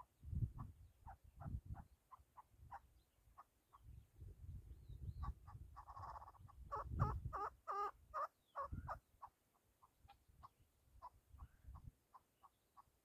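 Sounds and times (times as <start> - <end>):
partridge clucking calls: 5.2 - 12.9.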